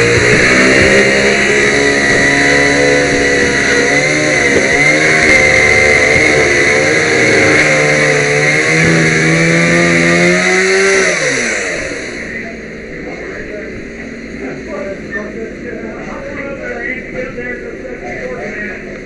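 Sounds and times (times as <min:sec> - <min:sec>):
small gasoline engine running: 0:00.0 - 0:15.2.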